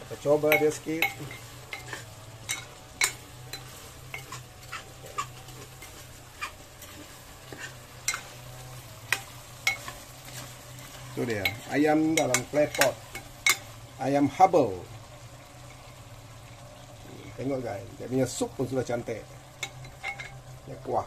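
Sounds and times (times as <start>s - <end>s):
faint sizzle of sauce: 0.0s - 21.0s
metal ladle scraping clay pot: 0.5s - 13.7s, 19.6s - 20.5s.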